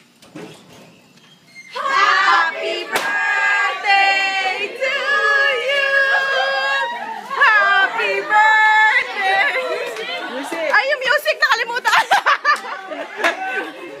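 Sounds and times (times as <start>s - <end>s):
group singing together: 1.7s - 10.4s
sharp crack: 2.9s - 3.2s.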